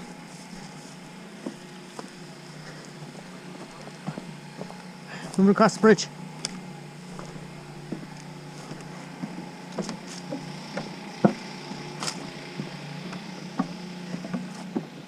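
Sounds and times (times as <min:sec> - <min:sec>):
footsteps on bridge: 0:00.0 - 0:15.0
steady low hum: 0:00.0 - 0:15.0.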